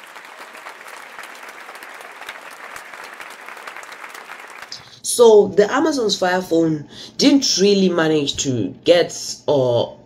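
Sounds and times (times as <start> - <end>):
crowd clapping: 0.0 - 4.8.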